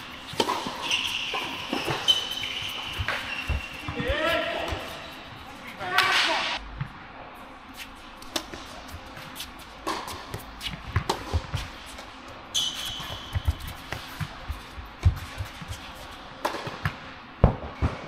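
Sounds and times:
tennis ball bouncing on court: 0.0 - 5.0, 9.8 - 12.1, 12.8 - 15.8, 16.4 - 18.0
tennis ball hit by racket: 0.3 - 4.0, 9.8 - 11.7, 16.4 - 18.0
high steady squeal: 0.6 - 3.9.

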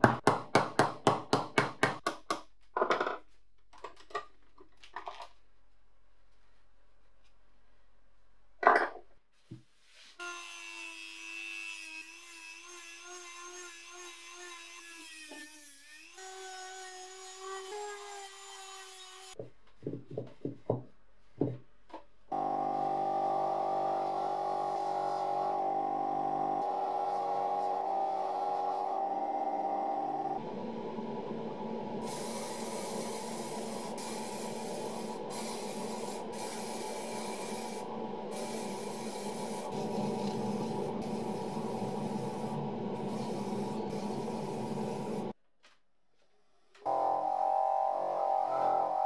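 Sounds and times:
rotary tool polishing metal: 10.3 - 19.4
bench buffing wheel running: 22.4 - 45.3.

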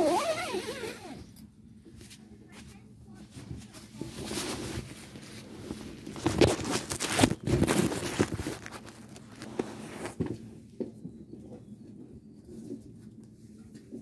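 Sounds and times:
fabric rustling and scraping: 0.0 - 10.5.

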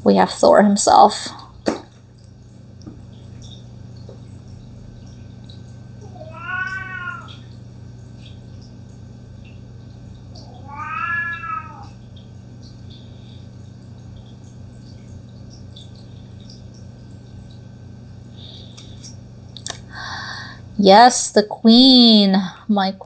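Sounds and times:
cat meowing: 6.0 - 7.5, 10.4 - 12.0.

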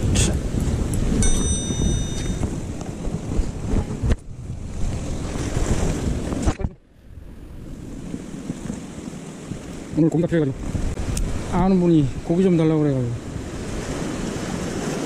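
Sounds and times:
wind buffeting microphone: 0.0 - 15.0
sea waves washing against rocks: 7.6 - 15.0.

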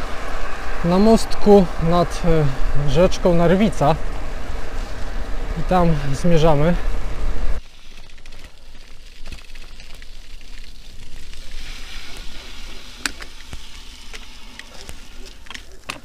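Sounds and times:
bicycle tyres crunching on gravel: 3.3 - 16.0
bike clicks over bumps: 6.8 - 16.0.

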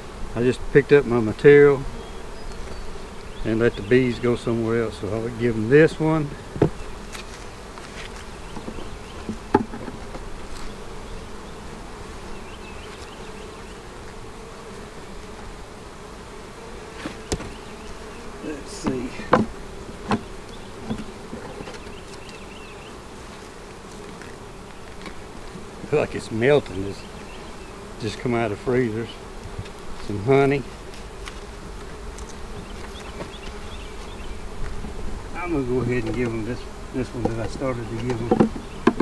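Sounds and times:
bees buzzing: 0.0 - 39.0
wooden frames knocking: 8.6 - 10.2, 18.8 - 21.8, 37.2 - 39.0.

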